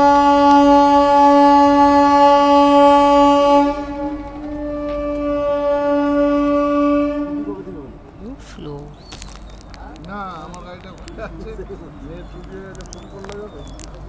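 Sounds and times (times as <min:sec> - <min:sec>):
train horn blast: 0:00.0 - 0:07.9.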